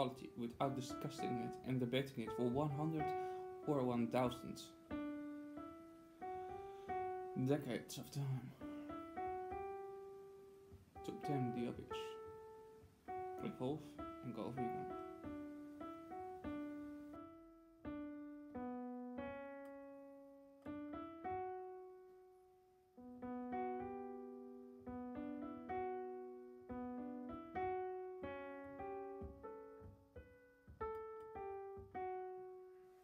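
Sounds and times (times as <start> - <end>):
slow solo piano melody: 0.0 - 33.0.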